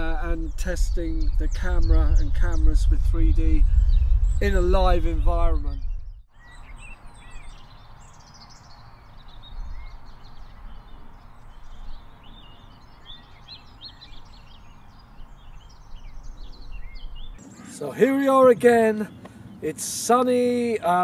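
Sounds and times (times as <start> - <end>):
steady low rumble: 0.0 - 6.3
birds chirping and trilling: 0.0 - 21.0.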